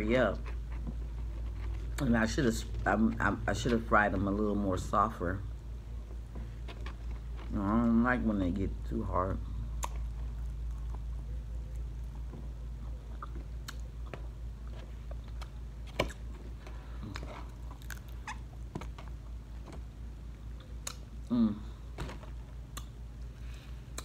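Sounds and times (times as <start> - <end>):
low steady hum: 0.0 - 24.0
chewing crunchy taco shell: 9.5 - 19.7
person humming: 21.2 - 21.8.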